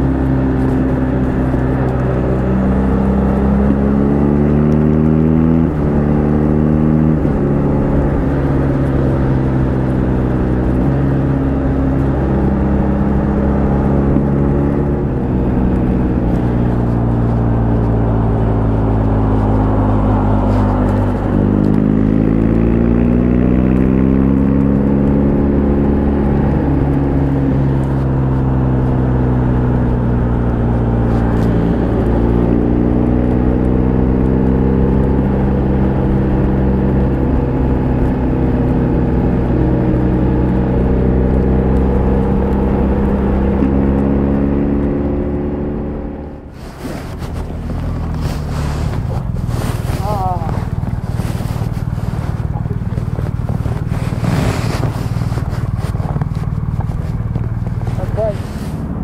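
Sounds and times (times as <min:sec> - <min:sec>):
motorcycle engine revving: 0:00.0 - 0:59.0
steady rushing noise: 0:44.6 - 0:59.0.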